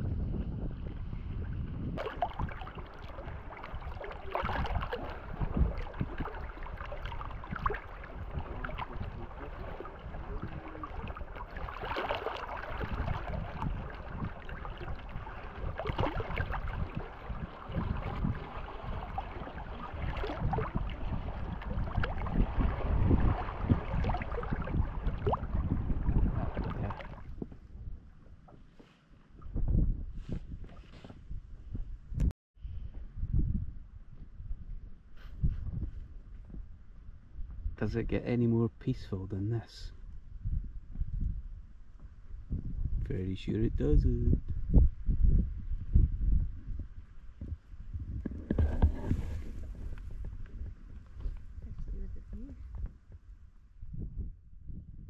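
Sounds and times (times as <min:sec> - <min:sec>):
wind rumbling on microphone: 0:00.0 - 0:55.0
water lapping against raft: 0:00.8 - 0:31.8, 0:46.8 - 0:53.4
water slaps: 0:02.0 - 0:25.6, 0:26.2 - 0:27.3.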